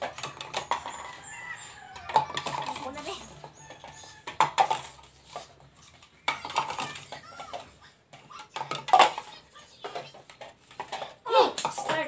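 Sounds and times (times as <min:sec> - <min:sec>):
cups clattering on tabletop: 0:00.0 - 0:12.0.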